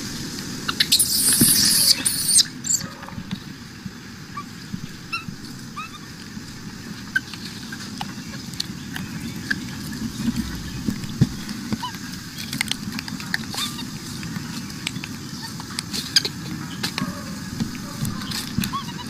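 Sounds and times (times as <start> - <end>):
macaques calling: 0.6 - 3.2, 16.1 - 19.0.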